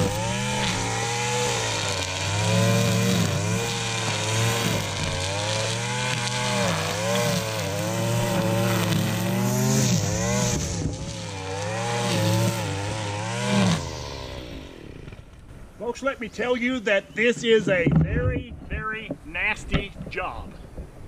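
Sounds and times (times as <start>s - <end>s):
string trimmer engine cutting grass: 0.0s - 15.6s.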